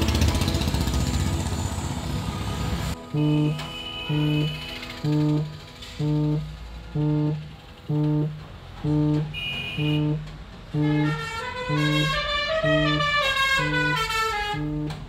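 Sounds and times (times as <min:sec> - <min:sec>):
repeated low note: 0:03.0 - 0:15.0.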